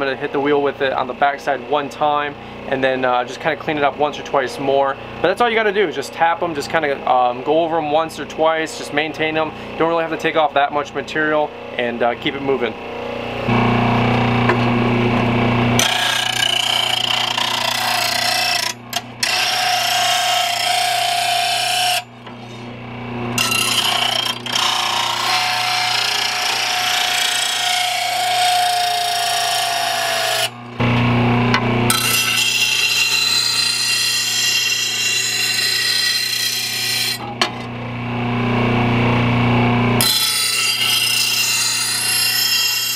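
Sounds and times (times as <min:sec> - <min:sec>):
grinder motor humming: 0:11.5 - 0:42.9
blade grinding on wheel: 0:15.8 - 0:22.8, 0:23.4 - 0:30.8, 0:31.9 - 0:37.6, 0:40.0 - 0:42.9.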